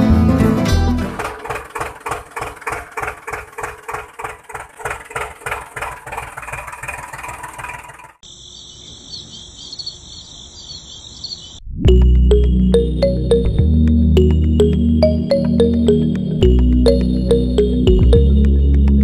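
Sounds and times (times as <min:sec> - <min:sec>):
model tractor engine chugging: 0:00.9 - 0:08.2
crickets chirring: 0:08.2 - 0:11.6.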